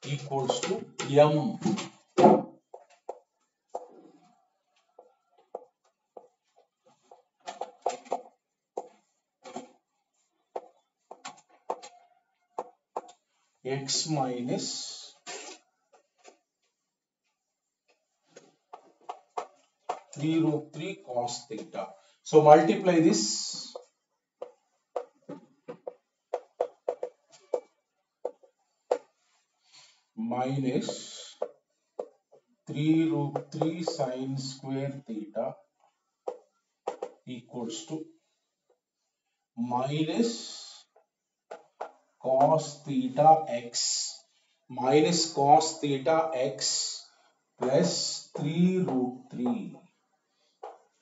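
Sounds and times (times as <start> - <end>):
chalk writing on chalkboard: 4.9 - 11.9, 18.8 - 20.2, 23.6 - 29.4, 36.3 - 37.2.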